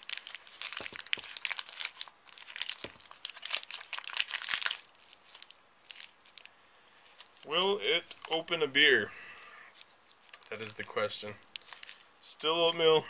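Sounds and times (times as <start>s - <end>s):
paper bag crinkling: 0.0s - 6.5s, 9.8s - 10.9s, 11.5s - 12.0s.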